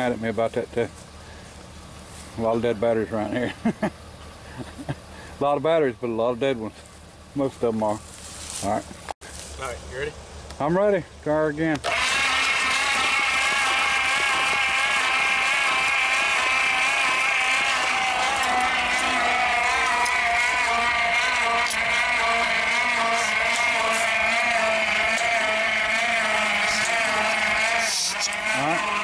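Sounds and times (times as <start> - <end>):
electric starter cranking engine: 11.7 - 29.0.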